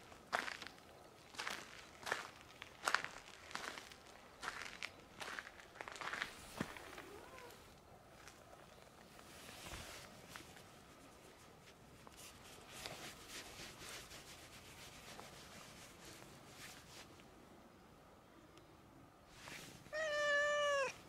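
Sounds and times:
hand stroking cat fur: 0:09.2 - 0:17.1, 0:19.3 - 0:19.9.

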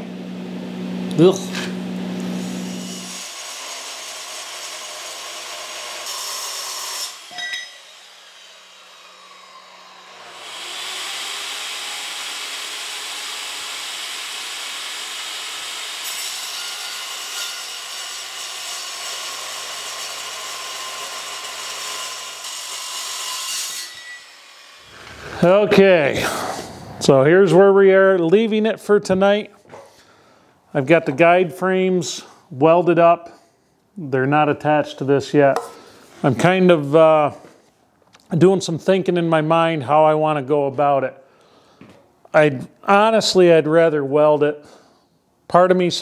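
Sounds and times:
circular saw cutting steel: 0:01.2 - 0:27.6.

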